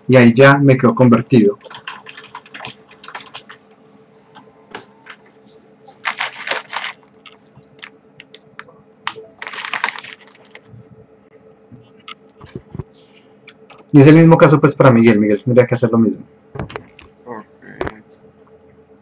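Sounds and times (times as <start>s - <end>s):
computer keyboard typing: 1.6s - 3.6s.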